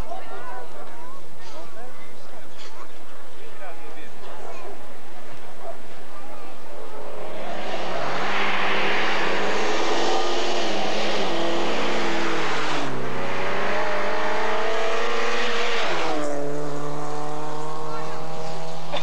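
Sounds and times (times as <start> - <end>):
rally car engine revving: 4.0 - 19.0.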